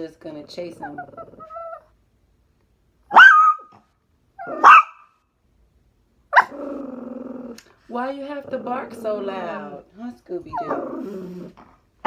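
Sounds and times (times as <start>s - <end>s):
small dog barking: 3.1s - 3.8s, 4.4s - 5.2s, 6.3s - 6.6s.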